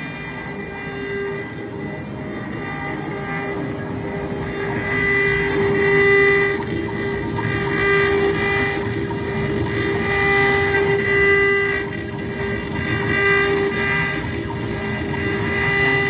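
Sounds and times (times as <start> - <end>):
router spindle high whine: 0.0 - 16.0
router bit cutting: 2.4 - 14.3.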